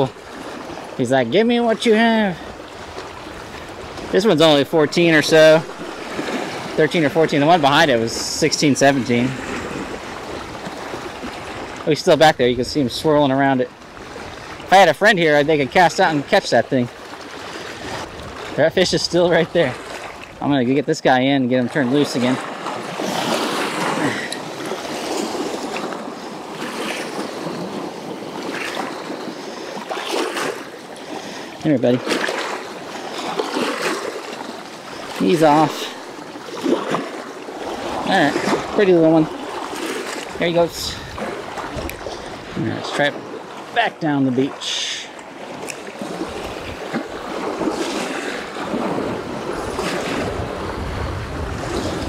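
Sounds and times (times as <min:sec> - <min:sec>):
wind buffeting microphone: 0:02.4 - 0:20.5, 0:34.9 - 0:43.4, 0:46.0 - 0:52.0
wind on microphone: 0:17.4 - 0:20.4, 0:36.6 - 0:43.3, 0:46.0 - 0:52.0
small waves washing over stones: 0:21.7 - 0:52.0.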